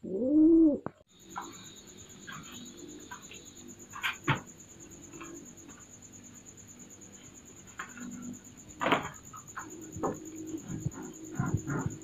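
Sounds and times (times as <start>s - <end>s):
pigeons cooing: 0.0s - 1.6s
high-pitched insect trill: 1.1s - 12.0s.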